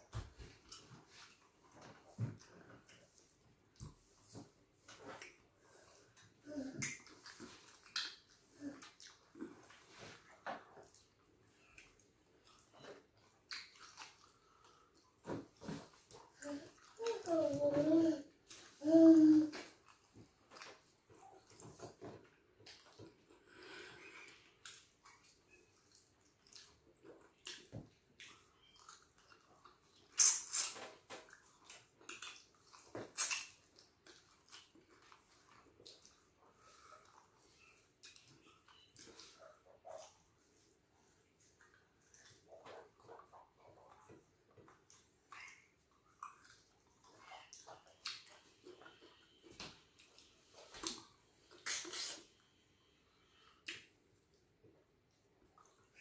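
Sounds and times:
wet mouth smacks and chewing: 11.7s - 14.7s, 24.6s - 36.2s, 50.0s - 52.3s, 53.6s - 54.0s.

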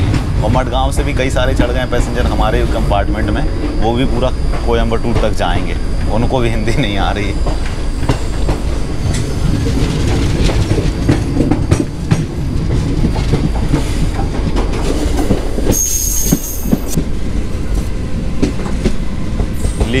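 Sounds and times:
train wheels clattering on rails: 0.0s - 20.0s
high wheel squeal: 15.6s - 17.0s.

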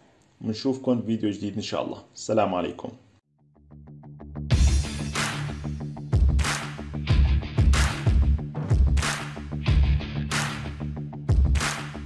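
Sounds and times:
electronic music: 3.9s - 12.0s.

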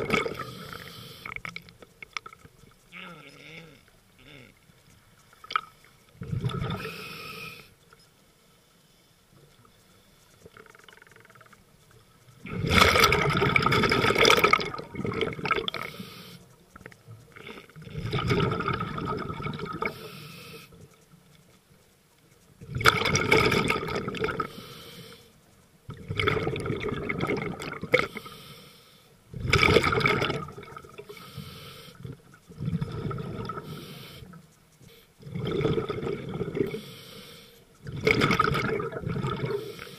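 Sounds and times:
scuba exhaust bubbles: 0.0s - 3.1s, 4.3s - 7.6s, 10.4s - 20.8s, 22.6s - 24.7s, 25.8s - 28.5s, 29.3s - 34.6s, 35.2s - 39.9s.

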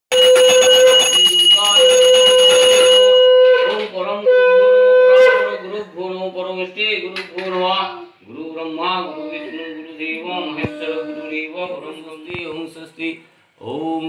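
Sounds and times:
conch shell blasts: 0.1s - 5.6s
man chanting: 3.5s - 14.0s.

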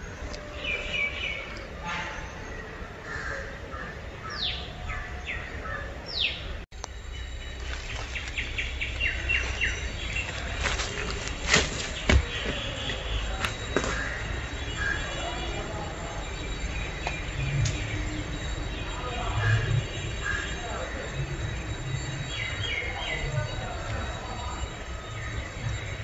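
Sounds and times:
birds calling: 0.0s - 21.0s
scattered clicks: 17.0s - 18.0s.

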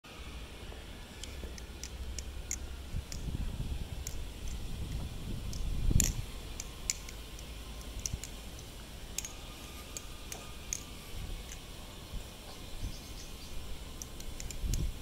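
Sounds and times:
butterfly knife clicking: 1.2s - 3.3s, 4.0s - 11.7s, 14.0s - 14.9s.

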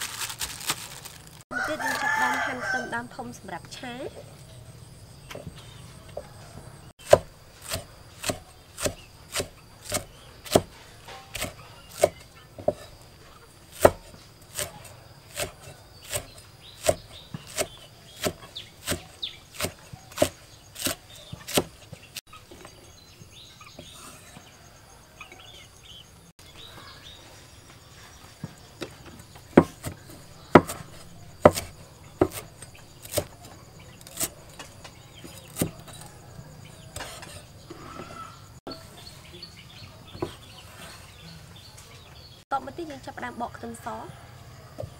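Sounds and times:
cleaver chopping on wooden block: 7.0s - 12.9s, 13.8s - 21.8s, 29.5s - 33.3s, 35.2s - 36.1s, 36.9s - 37.5s.

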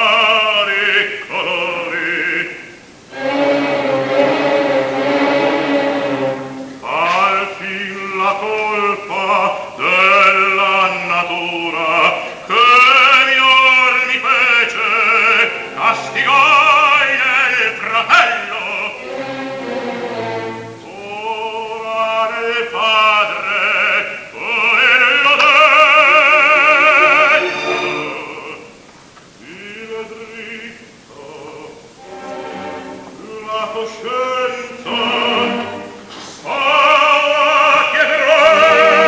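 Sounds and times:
man singing opera: 0.0s - 4.4s, 6.8s - 19.8s, 20.6s - 39.0s
orchestral accompaniment: 3.0s - 7.9s, 14.7s - 21.1s, 25.4s - 28.8s, 32.0s - 39.0s.

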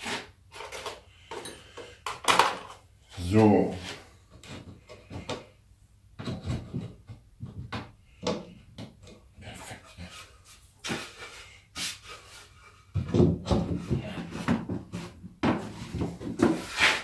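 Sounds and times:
wooden boards knocking and scraping: 6.2s - 9.2s, 12.9s - 17.0s
wood-on-wood rubbing: 13.1s - 17.0s.

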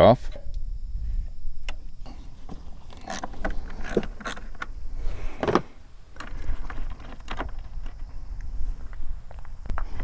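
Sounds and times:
battery cable clicks and rattles: 1.6s - 4.8s, 5.4s - 9.9s.

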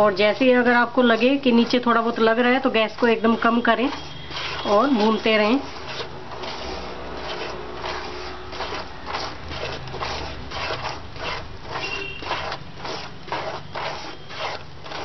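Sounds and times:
spatula scraping in a pan: 0.0s - 15.0s.

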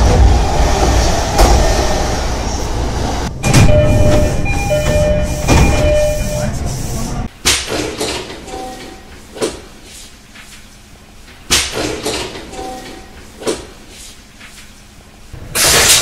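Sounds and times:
train door air hiss: 4.8s - 7.2s.

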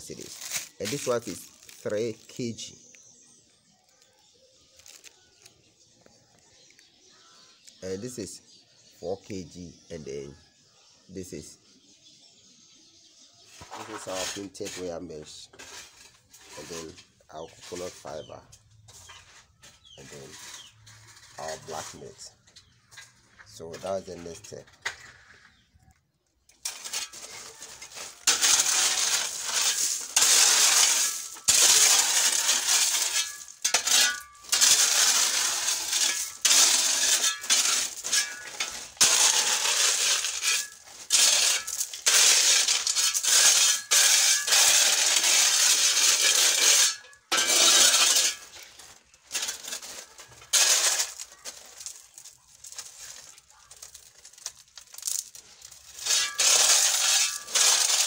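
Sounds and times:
spade scraping through gravel: 0.0s - 3.3s, 13.4s - 25.7s, 26.5s - 58.0s.

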